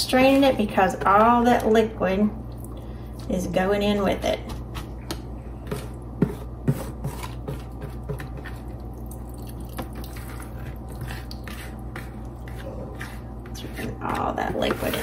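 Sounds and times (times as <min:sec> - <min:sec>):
wet cabbage squishing: 0:08.4 - 0:13.9.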